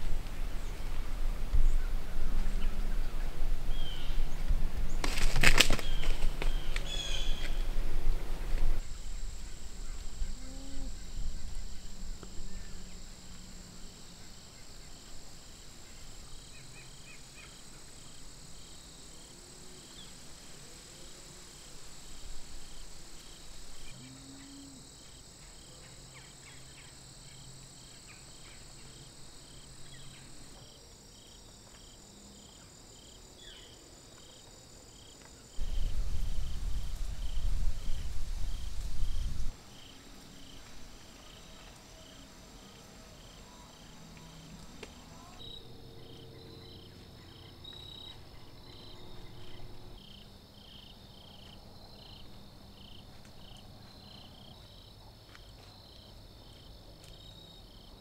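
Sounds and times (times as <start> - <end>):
crickets and insects chirping: 0.0 - 58.0.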